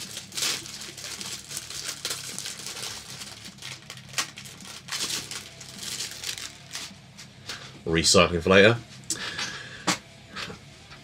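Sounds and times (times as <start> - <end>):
cellophane wrapper crinkling: 0.0 - 7.0.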